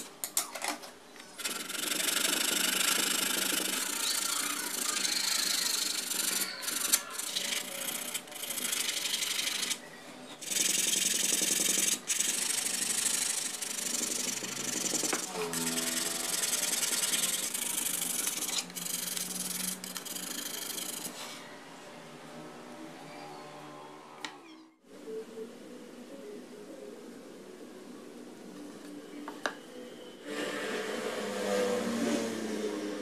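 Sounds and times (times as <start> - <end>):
sanding block rubbing wood: 10.4 - 21.2.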